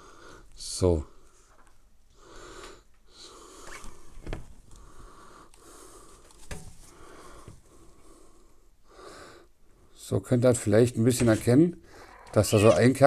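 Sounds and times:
man breathing heavily: 0.0s - 0.5s, 4.7s - 9.9s.

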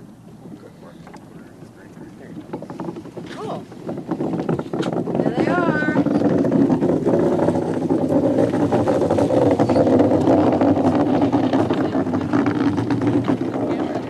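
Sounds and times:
runners rumbling over ice: 0.0s - 14.0s.

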